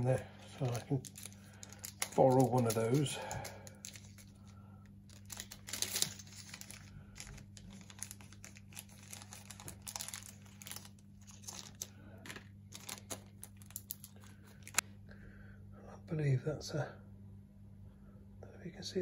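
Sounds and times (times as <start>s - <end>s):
plastic bag crinkling: 0.0s - 14.8s.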